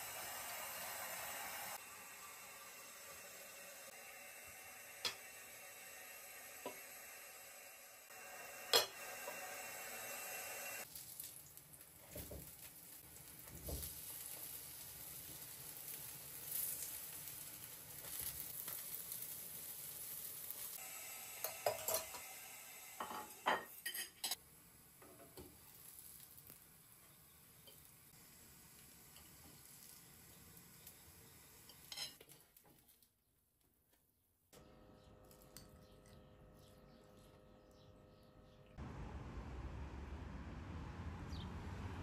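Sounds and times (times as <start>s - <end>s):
pancakes sizzling in oil: 0.0s - 32.8s.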